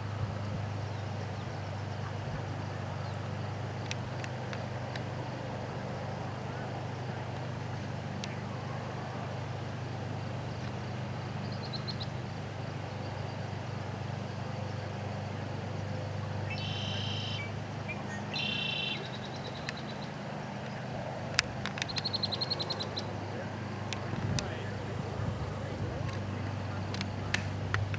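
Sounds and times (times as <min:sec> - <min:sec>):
low motor hum: 0:00.0 - 0:27.9
bird chirps and trills: 0:10.4 - 0:13.6, 0:16.3 - 0:20.9, 0:21.6 - 0:24.2.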